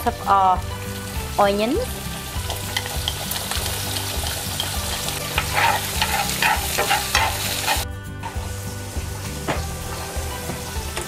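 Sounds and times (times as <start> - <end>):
onions sizzling in oil: 0.0 - 11.0
utensil scraping and tapping pan: 2.4 - 7.8.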